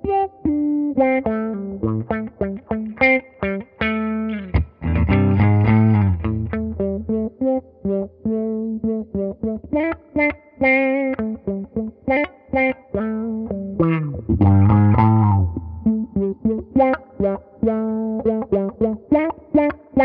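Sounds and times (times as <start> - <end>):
electric guitar with auto-wah: 0.0 - 20.0.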